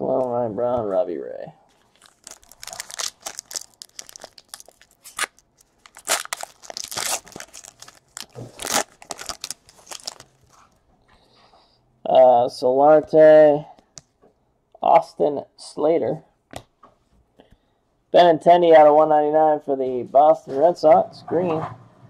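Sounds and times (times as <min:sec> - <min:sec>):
wrapper tearing and crinkling: 0:01.8 - 0:10.6.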